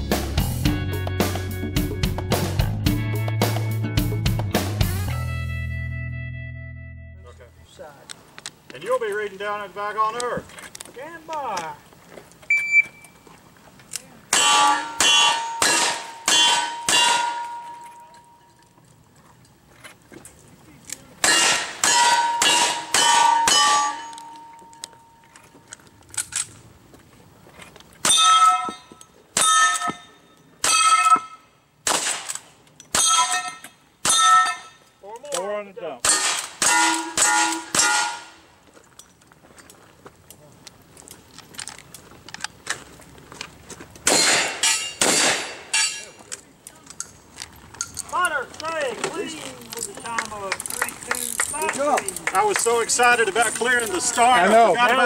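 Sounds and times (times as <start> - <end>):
gunshots: 14.3 - 17.6, 21.2 - 24.1, 31.8 - 32.4, 36.0 - 38.3, 44.1 - 45.9
steel plate clanging: 14.3 - 18.6, 21.2 - 25.3, 28.0 - 31.5, 32.9 - 35.0, 36.0 - 38.5, 44.1 - 46.2.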